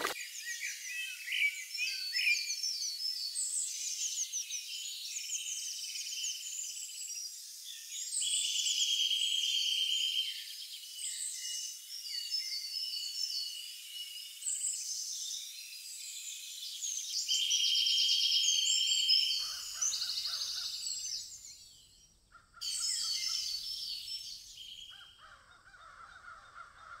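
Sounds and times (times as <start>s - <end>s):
songbirds chirping: 10.0s - 27.0s
crows cawing: 24.9s - 27.0s.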